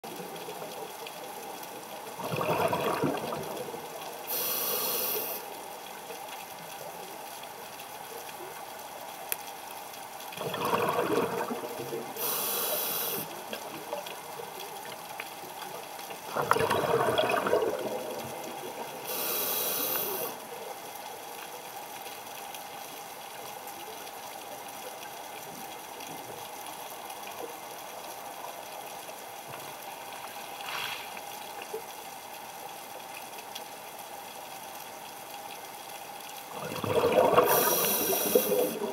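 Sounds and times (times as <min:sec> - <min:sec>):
exhaled bubbles underwater: 0:02.0 - 0:04.9, 0:10.3 - 0:14.9, 0:16.2 - 0:20.5, 0:36.5 - 0:38.9
regulator inhale hiss: 0:04.3 - 0:05.6, 0:12.2 - 0:13.4, 0:19.0 - 0:20.4, 0:30.5 - 0:31.3, 0:37.4 - 0:38.9.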